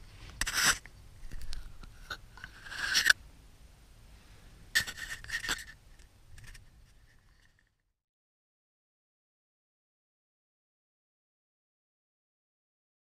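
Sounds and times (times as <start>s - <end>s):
plastic parts scraping on paper: 0.4s - 3.2s, 4.8s - 5.8s.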